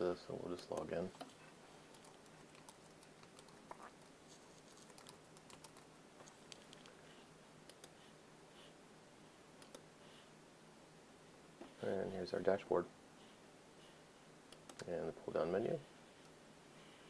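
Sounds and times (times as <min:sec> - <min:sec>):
faint low hum: 0:00.0 - 0:17.0
typing on keyboard: 0:01.9 - 0:03.7, 0:04.9 - 0:05.9.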